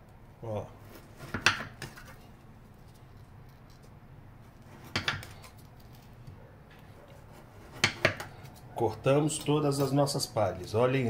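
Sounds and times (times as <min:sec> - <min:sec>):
knife cutting onto stone countertop: 0:04.7 - 0:05.6, 0:07.1 - 0:08.6.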